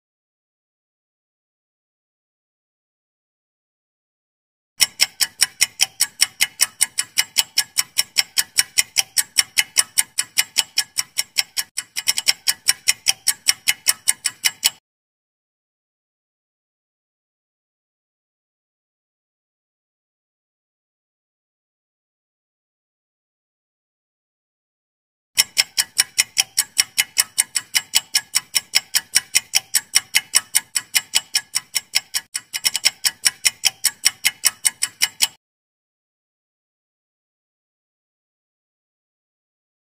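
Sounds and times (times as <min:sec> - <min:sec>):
fast clock ticking: 0:04.8 - 0:14.8, 0:25.4 - 0:35.4.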